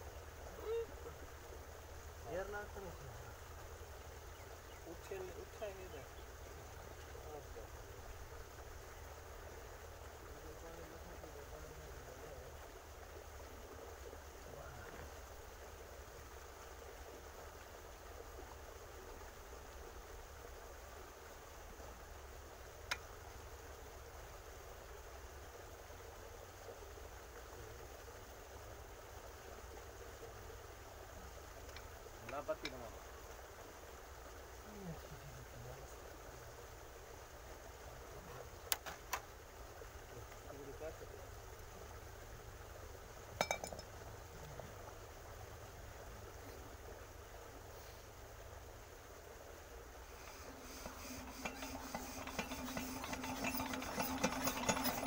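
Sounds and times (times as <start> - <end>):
faint background hiss: 0.0 - 55.0
metal-on-metal clink: 43.4 - 43.9.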